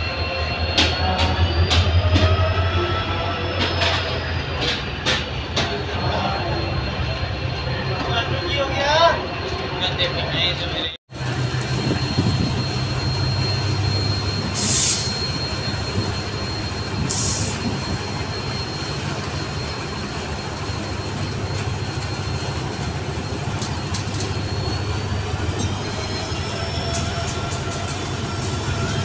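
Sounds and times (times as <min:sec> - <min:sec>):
train wheels rumbling on rails: 0:00.0 - 0:29.0
thin high squeal: 0:11.8 - 0:18.7, 0:23.7 - 0:29.0.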